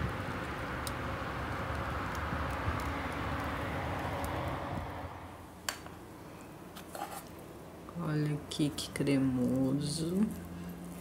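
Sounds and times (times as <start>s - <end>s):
steady rushing noise: 0.0s - 5.6s
logs crackling in stove: 0.0s - 6.1s, 6.7s - 11.0s
wind buffeting microphone: 1.8s - 5.3s.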